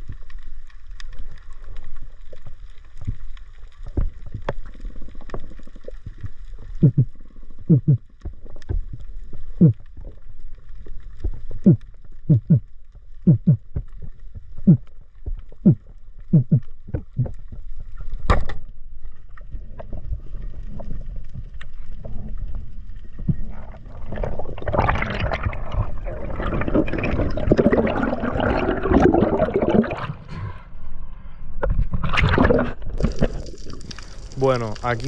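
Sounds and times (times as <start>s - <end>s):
underwater pulses falling in pitch: 6.7s - 9.9s, 11.3s - 13.9s, 14.5s - 17.6s, 23.4s - 30.2s
rush of water: 32.0s - 35.0s.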